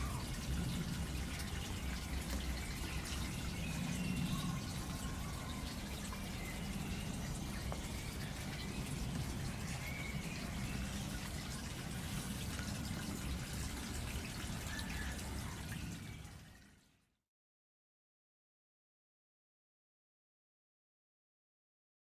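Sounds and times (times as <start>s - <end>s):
rain dripping on foliage: 0.0s - 16.0s.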